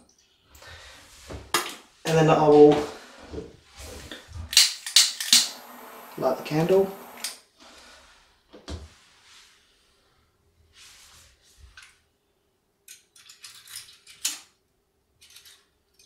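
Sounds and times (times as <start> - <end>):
soft rustles: 10.6 - 12.0.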